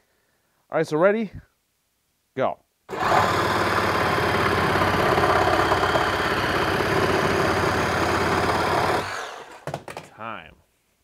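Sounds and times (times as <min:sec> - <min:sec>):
reciprocating saw cutting wood: 0:02.9 - 0:09.7.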